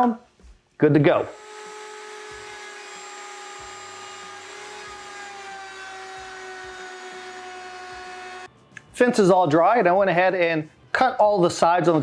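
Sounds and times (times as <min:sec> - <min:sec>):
router high whine: 0:01.3 - 0:08.5.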